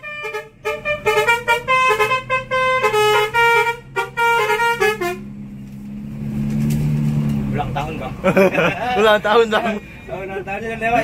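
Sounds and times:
bus musical horn tune: 0:00.0 - 0:05.5.

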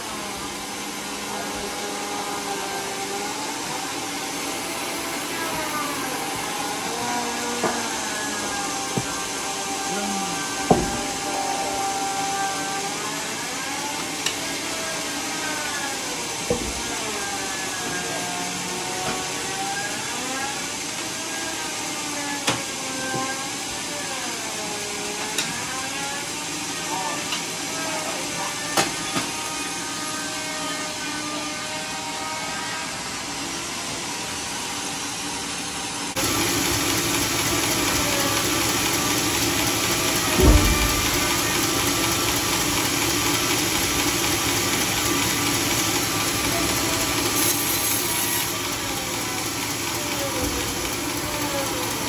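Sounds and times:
sawmill hissing noise: 0:00.0 - 0:15.4, 0:33.2 - 0:52.0
sawmill whine: 0:00.0 - 0:52.0.

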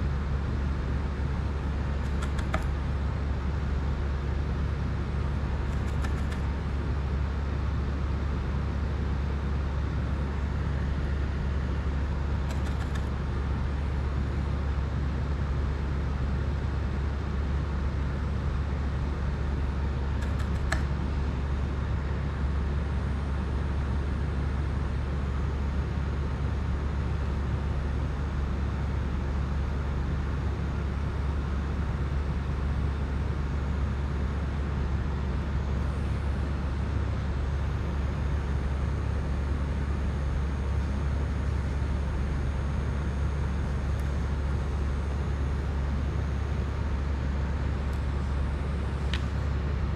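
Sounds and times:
faint short ticks: 0:02.0 - 0:02.7.

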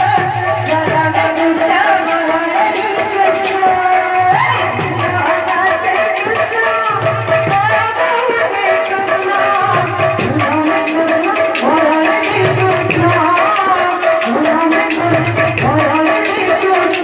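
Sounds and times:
jingling percussion: 0:00.0 - 0:17.0.

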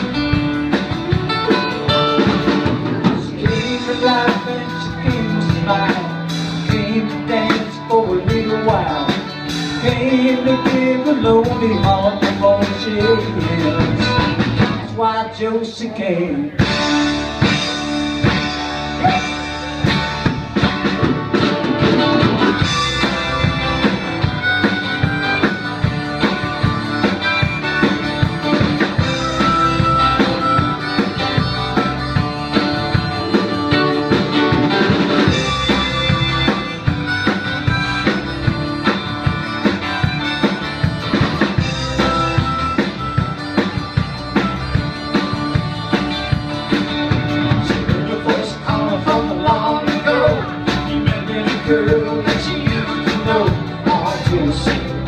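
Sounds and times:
drum kit: 0:00.0 - 0:15.2, 0:16.4 - 0:55.0
acoustic guitars strummed: 0:00.0 - 0:55.0
electric bass: 0:00.0 - 0:55.0
person singing lead vocal: 0:02.8 - 0:16.7, 0:19.0 - 0:19.4, 0:47.5 - 0:55.0
harmonica: 0:16.6 - 0:55.0.

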